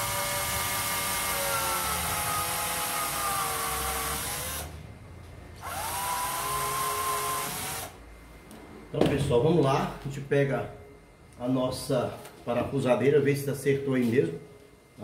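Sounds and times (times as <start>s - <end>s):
cordless drill whining: 0.0s - 4.7s, 5.6s - 8.0s.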